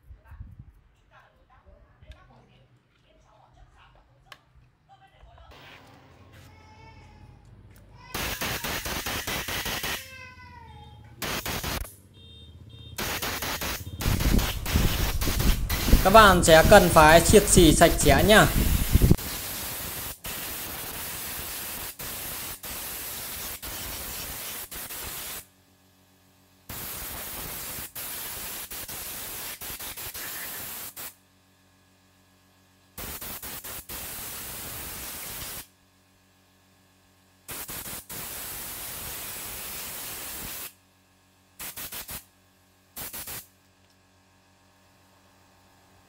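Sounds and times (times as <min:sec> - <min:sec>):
compressed-air blow gun hissing: 0:08.2 - 0:10.0, 0:11.2 - 0:11.9, 0:13.0 - 0:25.4, 0:26.7 - 0:31.1, 0:33.0 - 0:35.6, 0:37.5 - 0:40.7, 0:41.6 - 0:42.2, 0:43.0 - 0:43.4.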